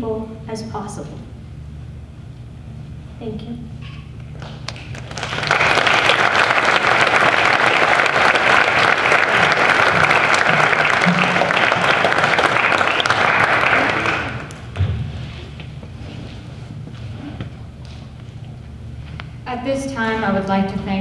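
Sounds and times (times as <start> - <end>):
audience applauding: 4.4 - 14.7.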